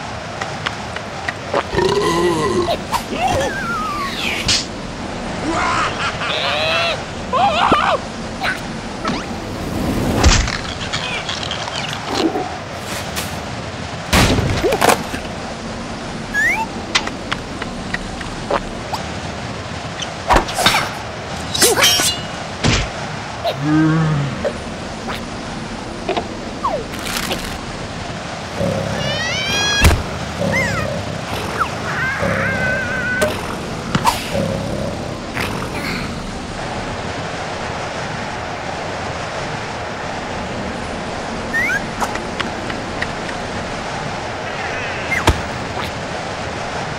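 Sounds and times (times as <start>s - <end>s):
strong storm wind: 0.0s - 46.9s
cartoon wind rushing: 16.1s - 16.9s, 28.7s - 34.4s, 35.0s - 46.9s.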